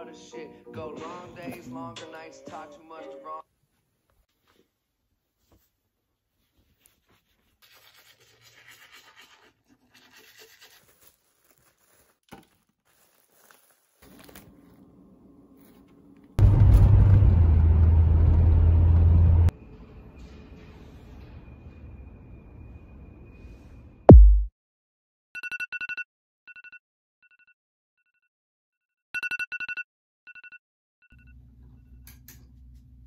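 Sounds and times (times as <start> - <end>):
scratching and rustling: 6.4 - 14.8
car driving rumble from inside: 16.4 - 19.5.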